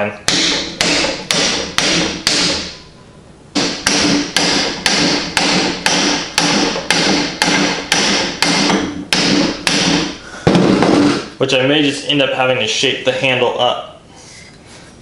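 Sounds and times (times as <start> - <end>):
hammer striking wooden handle: 0.3 - 2.8, 3.6 - 11.3.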